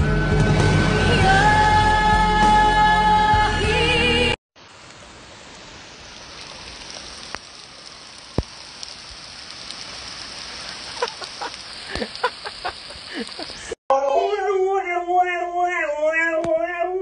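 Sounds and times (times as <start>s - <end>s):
light rain hissing: 4.6s - 13.8s.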